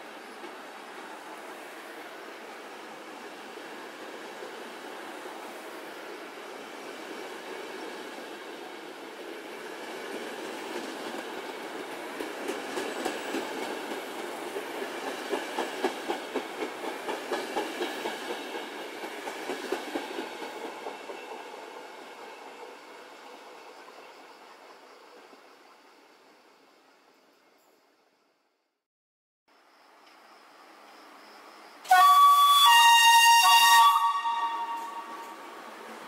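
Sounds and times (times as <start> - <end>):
train wheels clattering over rail joints: 9.9 - 21.9.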